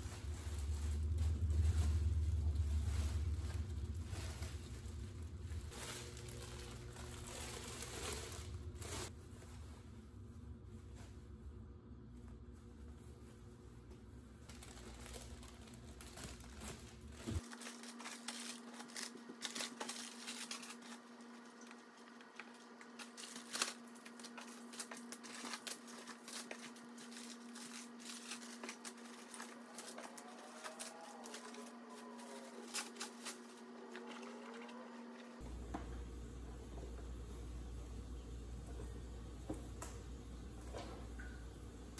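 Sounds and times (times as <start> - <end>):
plastic wrapping crinkling: 0.0 - 11.0, 14.4 - 35.4
faint steady hum: 0.0 - 41.9.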